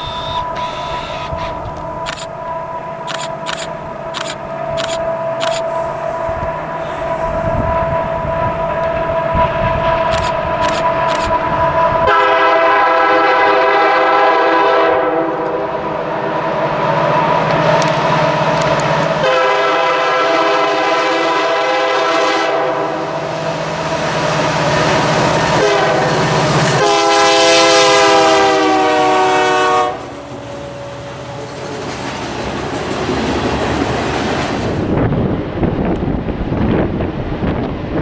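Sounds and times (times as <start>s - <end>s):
train rumble: 0.0s - 38.0s
train air horn blasts: 10.8s - 15.8s, 19.2s - 23.2s, 25.5s - 31.4s.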